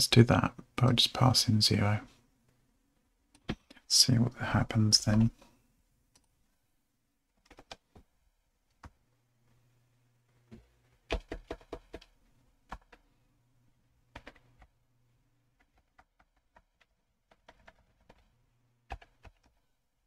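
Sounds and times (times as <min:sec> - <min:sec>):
computer keyboard typing: 0:07.4 - 0:08.0, 0:11.1 - 0:13.0, 0:14.1 - 0:14.7, 0:15.6 - 0:18.3, 0:18.9 - 0:19.6.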